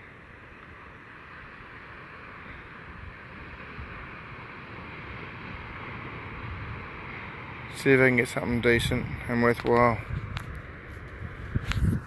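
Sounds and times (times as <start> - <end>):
storm wind blowing: 0.0 - 12.0
wind buffeting microphone: 2.8 - 12.0.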